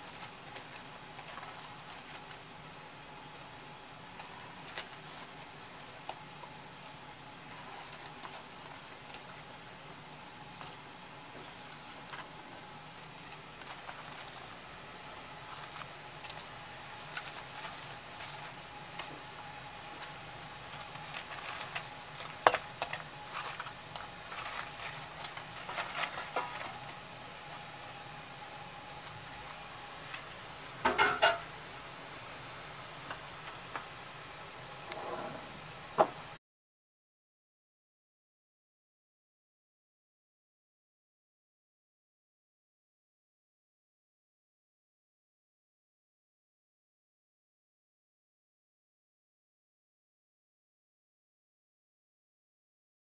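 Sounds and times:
steady hiss: 0:00.0 - 0:36.4
metal bowl clattering against pot: 0:30.8 - 0:31.5.

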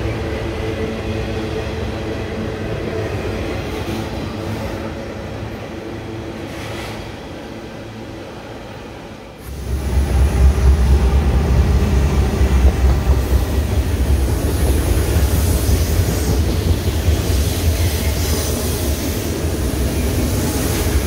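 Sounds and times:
train wheels rumbling on rails: 0:00.0 - 0:21.0
diesel engine drone: 0:09.4 - 0:15.3.

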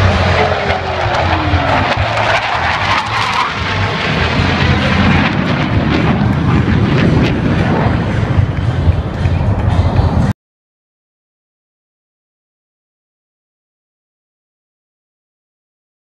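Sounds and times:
falling jet whine: 0:00.0 - 0:10.3
jet noise rushing: 0:00.0 - 0:10.3.

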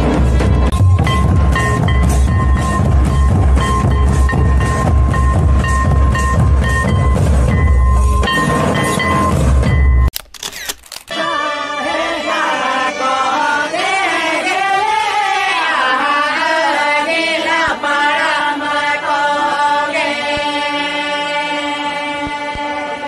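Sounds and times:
chant-like singing: 0:11.1 - 0:23.0.

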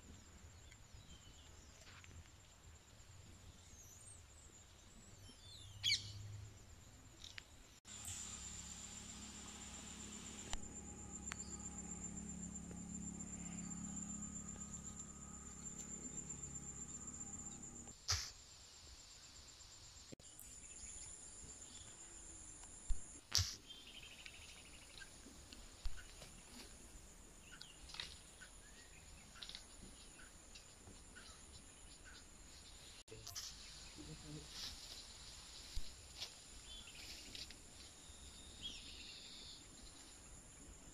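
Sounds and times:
insects droning: 0:05.8 - 0:40.9
low hum: 0:07.9 - 0:18.0.

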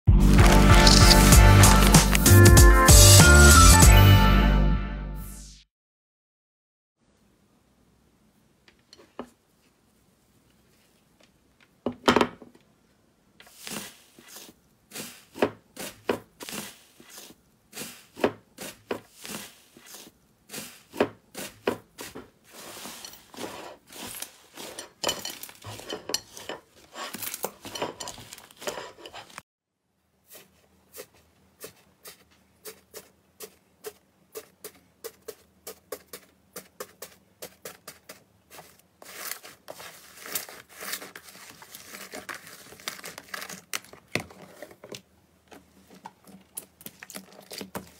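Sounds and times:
foil crinkling and crackling: 0:00.2 - 0:02.4, 0:22.5 - 0:29.4, 0:37.8 - 0:44.9, 0:45.9 - 0:47.9.

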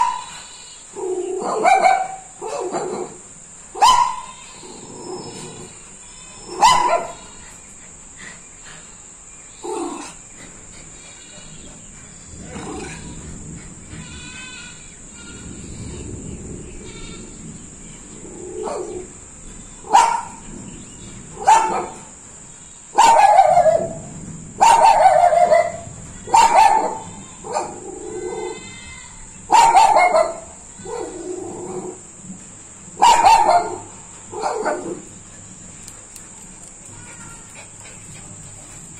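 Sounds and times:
dog barking: 0:00.0 - 0:00.4, 0:01.4 - 0:03.2, 0:03.8 - 0:04.3, 0:06.6 - 0:07.2, 0:18.6 - 0:19.0, 0:19.9 - 0:20.4, 0:21.4 - 0:22.1, 0:23.0 - 0:27.9, 0:29.5 - 0:31.3, 0:33.0 - 0:35.0.

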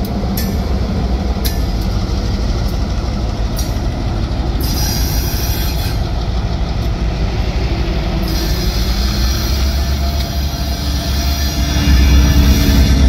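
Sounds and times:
diesel locomotive rumble: 0:00.0 - 0:13.0
wheels on rails: 0:00.0 - 0:13.0
faint high wheel squeal: 0:04.6 - 0:06.2, 0:08.2 - 0:13.0.

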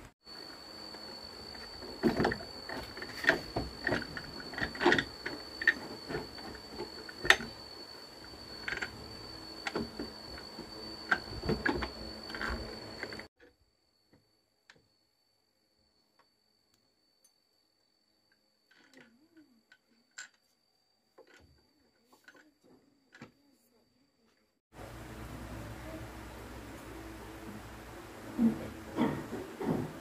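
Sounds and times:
faint high whine: 0:00.0 - 0:30.0
motor clicking and knocking on wood: 0:09.6 - 0:13.3.

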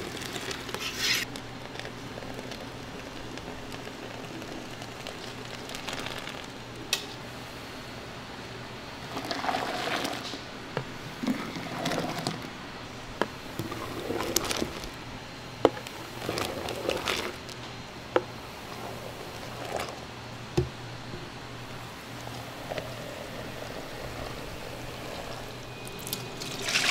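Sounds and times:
thick mixture pouring through strainer: 0:00.0 - 0:06.6, 0:09.0 - 0:10.4, 0:11.2 - 0:12.6, 0:13.5 - 0:15.0, 0:22.3 - 0:26.9.

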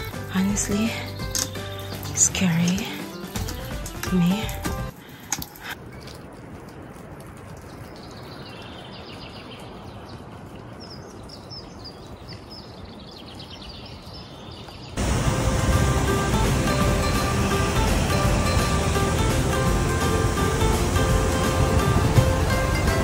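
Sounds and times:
flowing water rushing: 0:15.0 - 0:23.0
loud music: 0:15.0 - 0:23.0.

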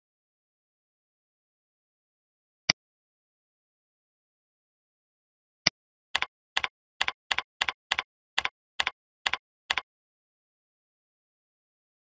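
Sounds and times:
keyboard typing: 0:06.2 - 0:09.9.

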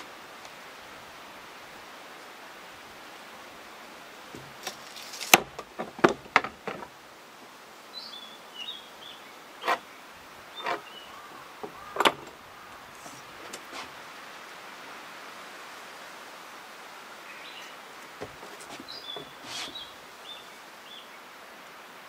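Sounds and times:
steady outdoor hiss: 0:00.0 - 0:22.0
bird chirps: 0:18.7 - 0:21.1.

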